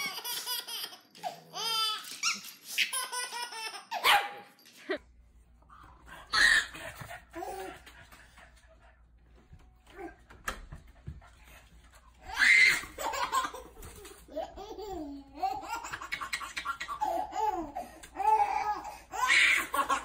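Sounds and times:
baby laughing and squealing: 0.0s - 4.2s, 6.3s - 7.7s, 12.2s - 20.0s.

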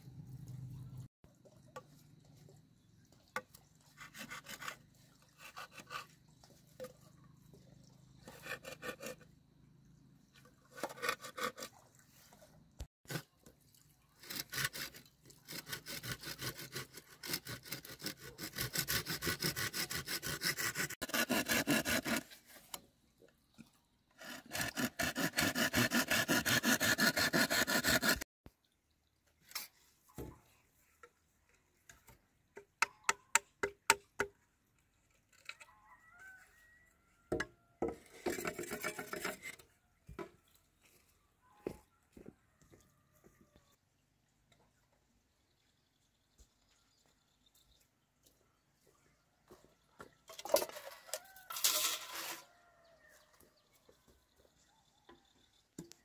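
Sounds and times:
hand saw cutting bamboo: 3.9s - 6.2s, 8.2s - 9.2s, 10.7s - 11.8s, 14.2s - 22.8s, 24.2s - 28.3s, 37.9s - 39.6s.

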